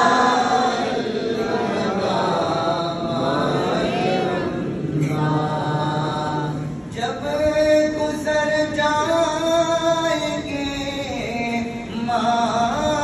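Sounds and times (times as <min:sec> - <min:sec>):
men singing in unison: 0:00.0 - 0:13.0
amplified man singing: 0:04.8 - 0:13.0.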